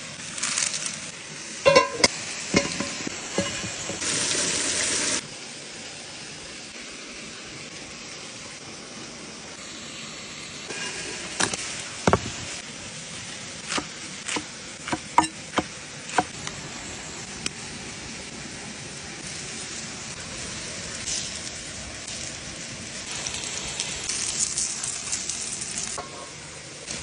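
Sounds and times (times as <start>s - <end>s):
waterfall hissing: 0.0s - 27.0s
knife chopping on wooden board: 13.7s - 16.3s.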